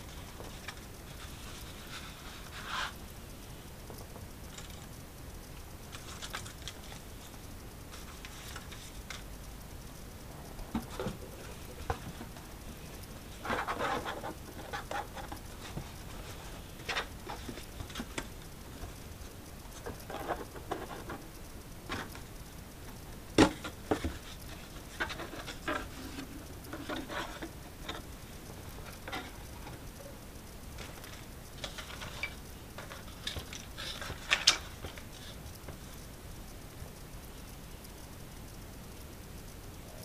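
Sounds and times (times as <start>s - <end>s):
cardboard rustling and scraping: 0.1s - 3.0s, 10.7s - 12.7s, 13.3s - 18.9s, 23.4s - 28.1s.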